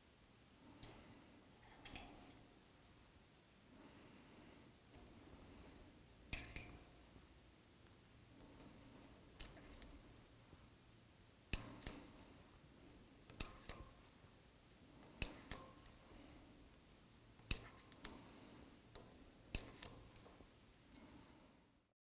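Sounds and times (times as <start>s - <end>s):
hand tap clicking in metal: 6.3s - 6.8s, 11.5s - 12.0s, 13.3s - 14.0s, 15.2s - 16.0s.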